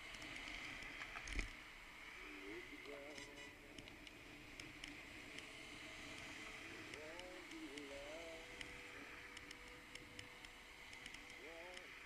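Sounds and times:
light ticks: 0.0 - 1.6, 2.8 - 12.0
muffled voice: 2.2 - 3.8, 6.8 - 8.5, 11.3 - 12.0.

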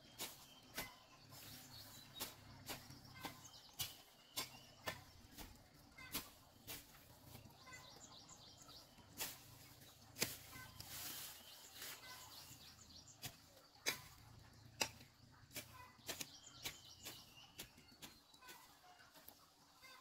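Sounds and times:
faint bird chirps: 0.0 - 19.2, 19.8 - 20.0.

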